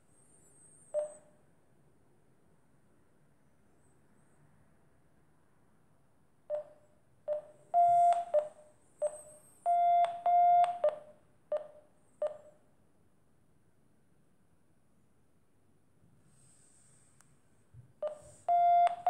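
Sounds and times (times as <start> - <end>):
short electronic beeps: 7.3 - 12.5.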